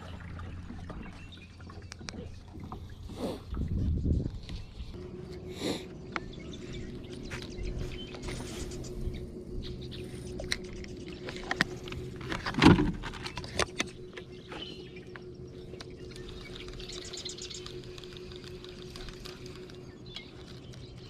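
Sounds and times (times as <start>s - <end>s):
faint steady hum: 0.0s - 21.0s
fishing rod and reel clicking: 10.3s - 21.0s.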